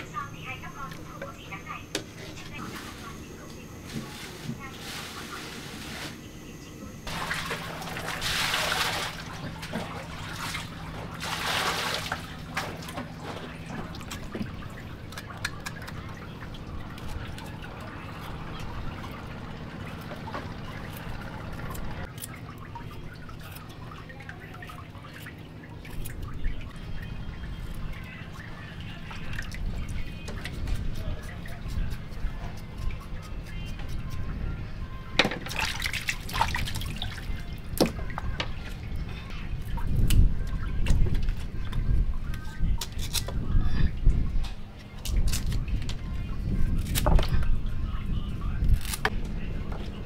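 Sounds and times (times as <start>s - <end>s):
low steady hum: 0.0s - 50.0s
water pouring and splashing: 7.1s - 33.2s, 35.3s - 38.9s.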